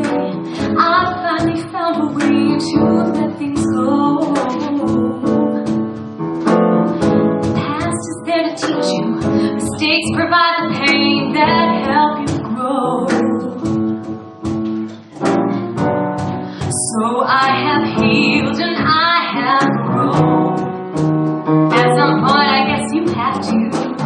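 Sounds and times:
woman singing ballad: 0:00.0 - 0:05.6, 0:07.6 - 0:13.9, 0:16.6 - 0:20.6, 0:21.7 - 0:24.0
instrumental accompaniment: 0:00.0 - 0:24.0.

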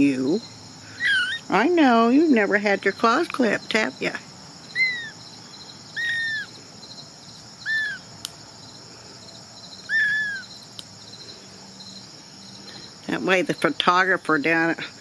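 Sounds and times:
crickets chirring: 0:00.0 - 0:15.0
kitten mewing: 0:01.0 - 0:01.4, 0:04.8 - 0:05.1, 0:06.0 - 0:06.5, 0:07.7 - 0:08.0, 0:09.9 - 0:10.5.

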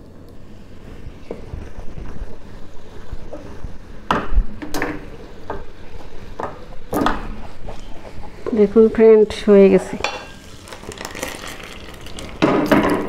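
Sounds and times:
sugar syrup bubbling in a pan: 0:10.4 - 0:13.0.

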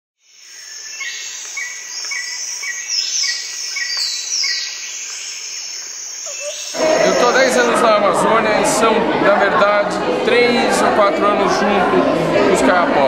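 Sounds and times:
high insect drone: 0:00.2 - 0:07.7
whistled bird calls: 0:00.4 - 0:07.7.

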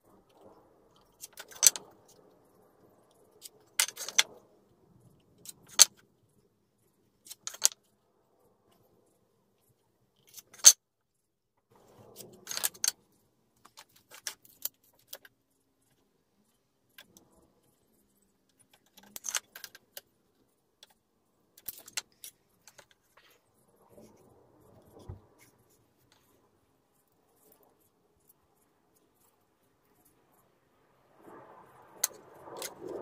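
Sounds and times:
hand tools clicking and clattering: 0:03.4 - 0:04.3.

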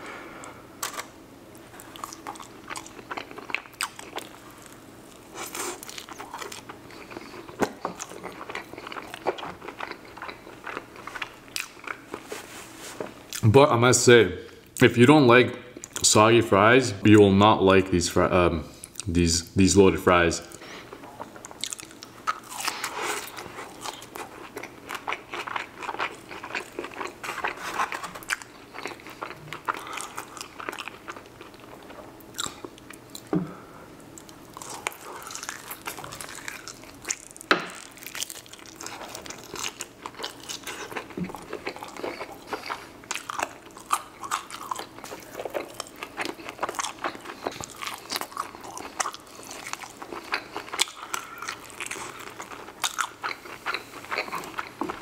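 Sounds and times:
crunchy chewing: 0:01.8 - 0:12.4, 0:21.0 - 0:33.3, 0:34.1 - 0:55.0.

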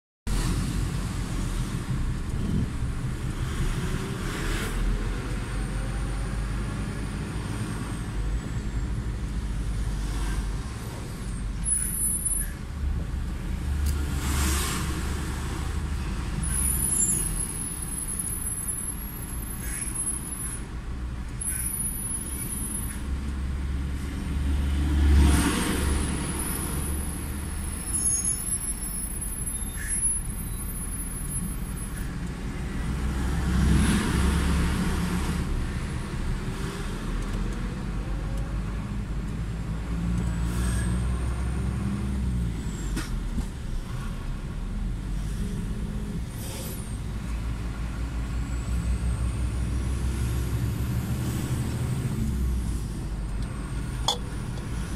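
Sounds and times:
cars and lorry passing: 0:00.3 - 0:54.9
low vehicle engine rumble: 0:34.8 - 0:54.9.

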